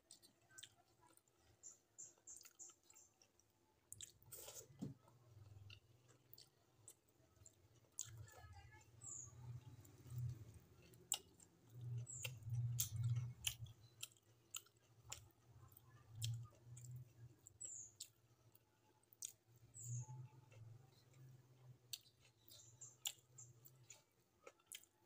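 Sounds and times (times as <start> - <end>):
person chewing food: 0.0 - 25.0.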